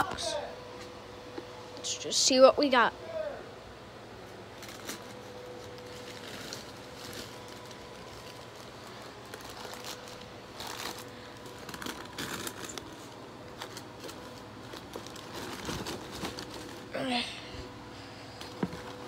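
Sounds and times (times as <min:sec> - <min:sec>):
tissue paper rustling: 0:04.6 - 0:16.9.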